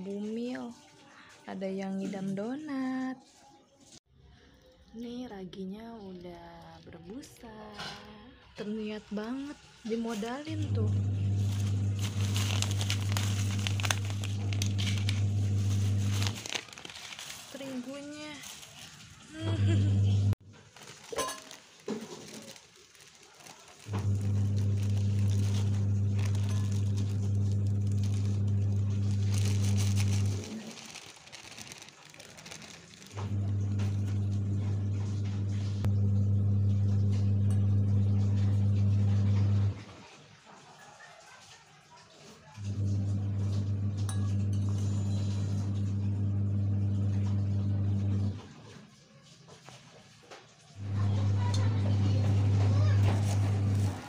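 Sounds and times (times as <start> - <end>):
plastic bag crinkling: 4.4 - 19.8, 20.4 - 35.2, 50.8 - 54.0
low electrical motor hum: 10.6 - 16.6, 23.8 - 30.6, 33.1 - 39.8, 42.6 - 48.4
flour pouring into metal bowl: 11.3 - 19.0, 20.9 - 34.8, 50.8 - 54.0.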